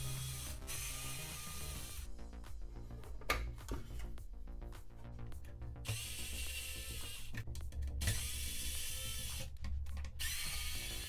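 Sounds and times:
electric screwdriver running: 0:00.0 - 0:02.1, 0:08.0 - 0:09.5, 0:10.2 - 0:11.0.

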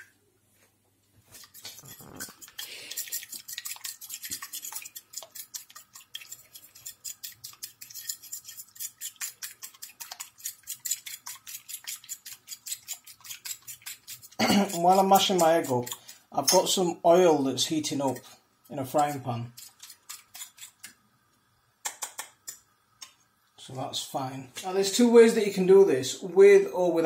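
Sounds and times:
fork beating egg on plate: 0:01.2 - 0:16.8, 0:17.6 - 0:21.0.

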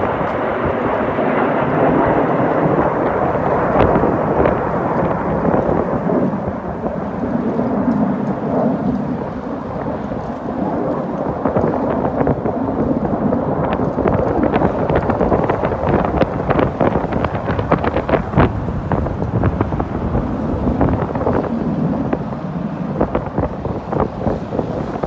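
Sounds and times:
jet engine rumble overhead: 0:00.0 - 0:25.0.

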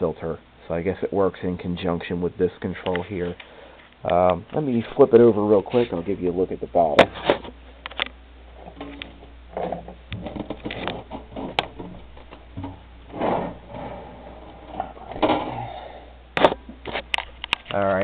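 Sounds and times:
scraping and rubbing: 0:04.6 - 0:06.2, 0:08.5 - 0:15.8
radio knocking and clunking: 0:06.9 - 0:15.6, 0:16.4 - 0:17.7.

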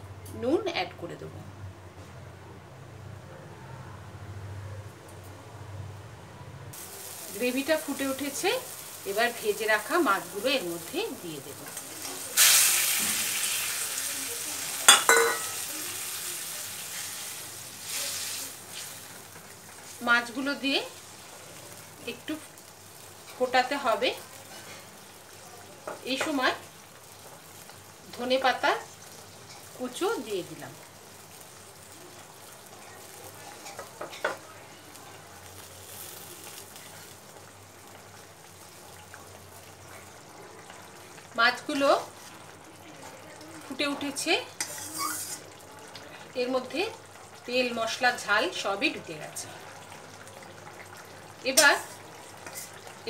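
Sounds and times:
fish sizzling in gravy: 0:06.7 - 0:53.0
metal clinking on steel pan: 0:14.9 - 0:15.6.

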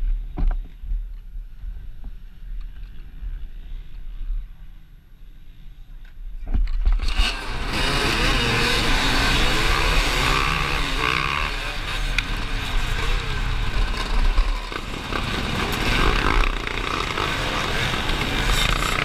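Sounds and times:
dirt bikes revving and pulling away: 0:06.6 - 0:19.0.

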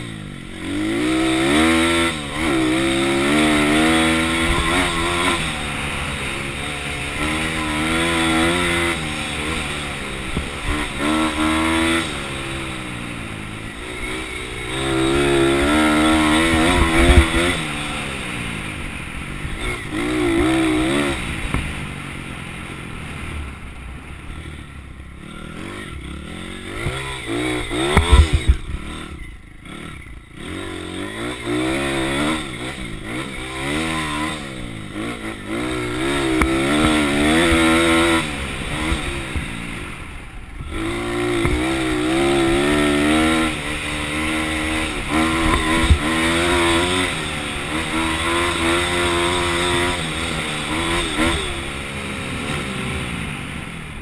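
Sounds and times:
pit bike engine revving: 0:00.0 - 0:54.0.

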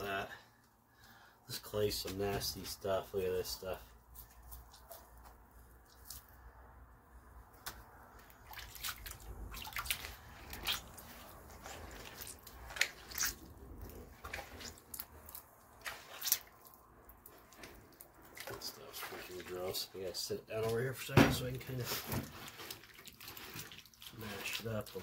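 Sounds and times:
wet clay squelching: 0:01.7 - 0:25.0
water splashes and drips: 0:04.1 - 0:06.6, 0:07.6 - 0:25.0.

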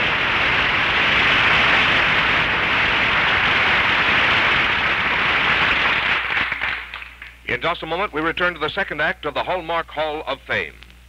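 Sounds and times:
rocket engine roaring: 0:00.0 - 0:07.0.

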